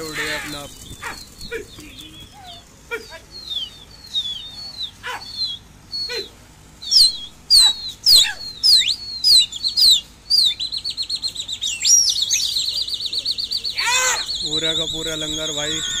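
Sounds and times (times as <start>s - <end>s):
sharp rising and falling whistles: 3.4s - 16.0s
warbling whistle trill: 6.8s - 13.6s.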